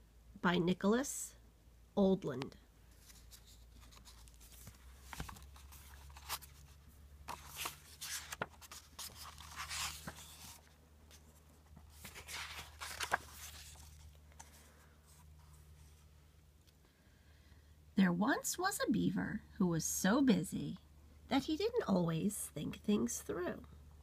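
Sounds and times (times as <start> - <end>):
book pages turning: 2.9 - 16.1.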